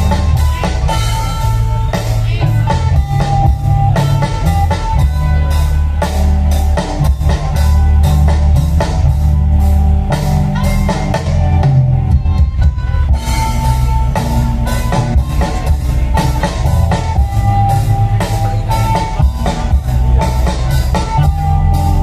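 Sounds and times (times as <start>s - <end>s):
drum kit beat: 0.0s - 22.0s
guitar: 0.0s - 22.0s
heavy bass: 0.0s - 22.0s.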